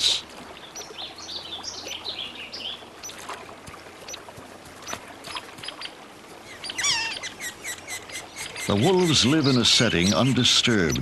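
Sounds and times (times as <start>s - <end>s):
small water splashes: 0.0s - 9.4s
bird chirping: 4.8s - 11.0s.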